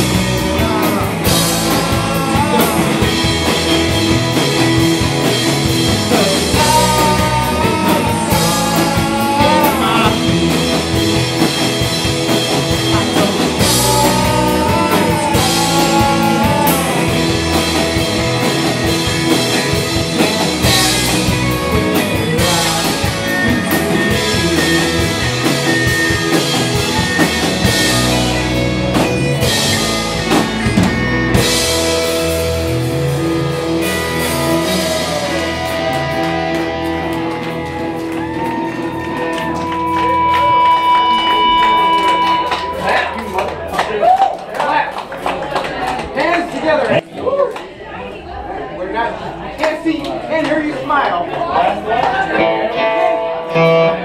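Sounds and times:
drum kit with cymbals: 0.0s - 36.8s
electric guitar: 0.0s - 44.4s, 51.9s - 54.0s
rock band playing: 0.0s - 47.1s, 51.9s - 54.0s.

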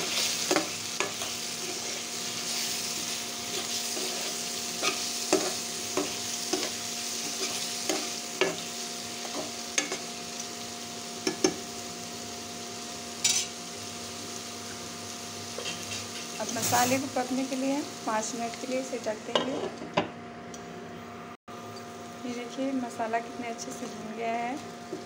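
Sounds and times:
spatula scraping a pan: 0.0s - 8.6s
vegetables sizzling in oil: 0.0s - 19.8s, 21.5s - 25.0s.

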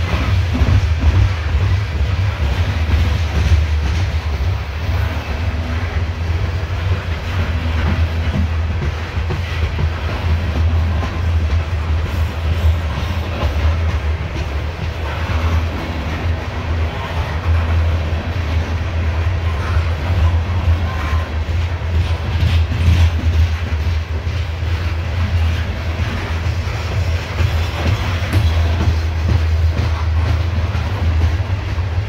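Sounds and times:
steel wheels rumbling on rails: 0.0s - 32.0s
wheels clacking over rail joints: 0.0s - 32.0s.

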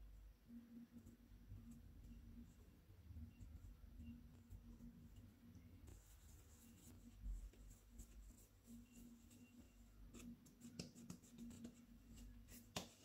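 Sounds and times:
hands patting dough: 10.1s - 13.0s.

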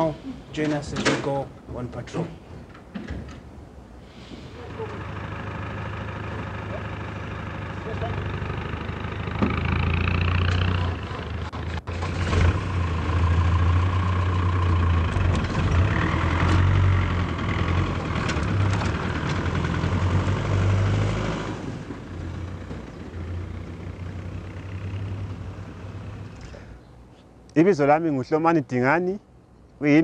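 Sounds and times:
pickup truck engines pulling away: 4.6s - 26.7s.

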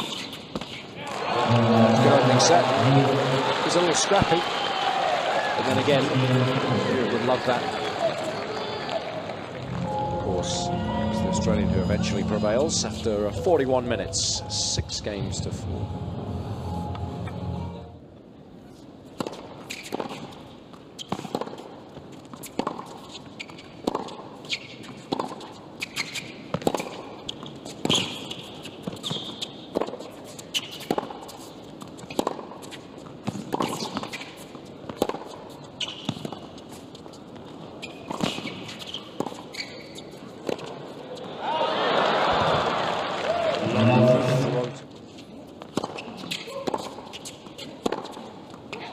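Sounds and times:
shoes squeaking: 0.0s - 0.9s, 19.6s - 20.4s, 21.0s - 41.4s, 44.9s - 48.9s
crowd applause: 1.2s - 10.0s, 41.4s - 44.8s
racquet striking tennis ball: 47.8s - 48.2s.

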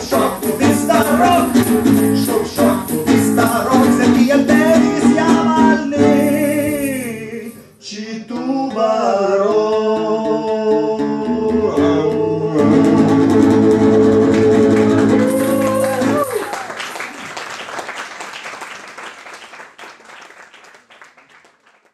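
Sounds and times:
tambourine: 0.0s - 4.0s, 15.2s - 16.5s
strummed acoustic guitar: 0.0s - 7.7s, 8.3s - 16.4s
men singing: 0.0s - 16.4s.

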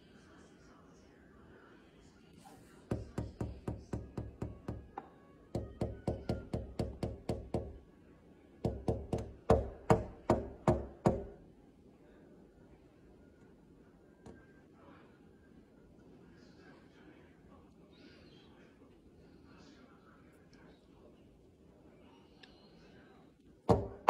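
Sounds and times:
rapid tapping on window glass: 2.9s - 4.9s, 5.6s - 7.8s, 8.6s - 11.4s.

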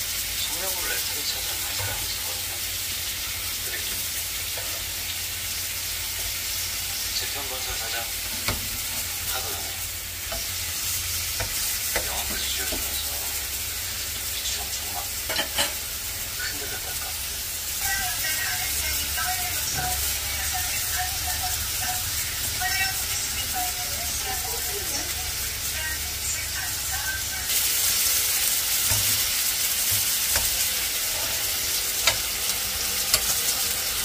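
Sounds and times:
pork sizzling in a grill pan: 0.0s - 34.0s
metal tongs clicking on pan: 29.9s - 30.6s, 32.0s - 33.6s.

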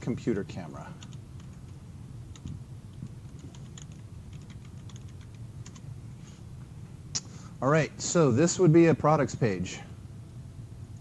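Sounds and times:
faint low hum: 0.0s - 11.0s
computer keyboard typing: 1.0s - 5.9s.

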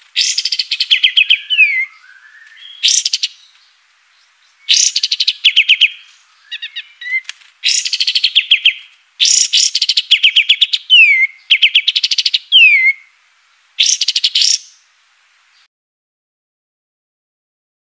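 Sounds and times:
bird singing rapid trills: 0.2s - 3.6s, 4.2s - 13.1s, 13.8s - 14.8s.

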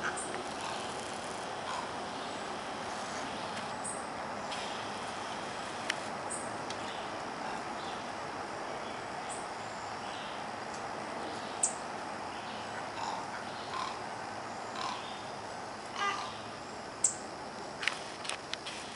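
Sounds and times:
small birds chirping: 0.0s - 5.1s, 6.3s - 8.1s
outdoor background noise: 0.0s - 18.9s.

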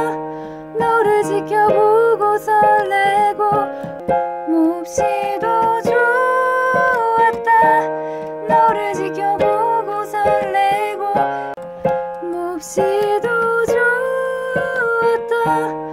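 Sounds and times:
held accompaniment chords: 0.0s - 15.9s.

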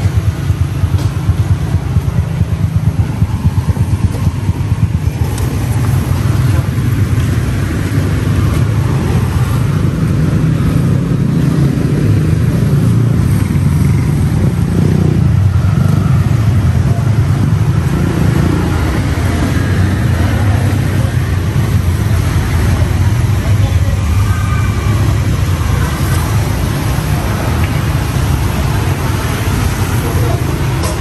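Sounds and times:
low rumble of traffic: 0.0s - 31.0s
faint voices: 14.4s - 31.0s.

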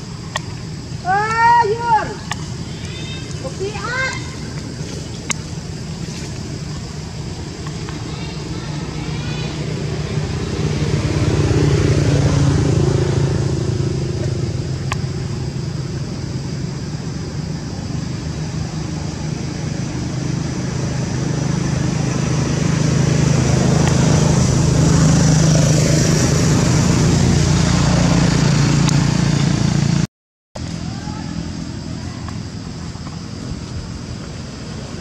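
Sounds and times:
motor engine humming: 0.0s - 35.0s.

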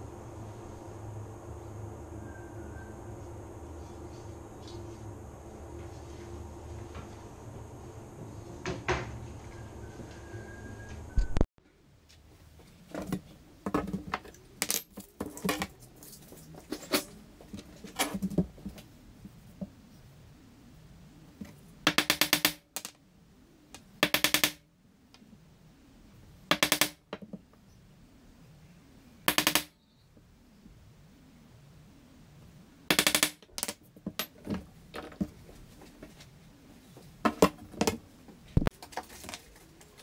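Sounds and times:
tools being handled: 12.9s - 18.4s.

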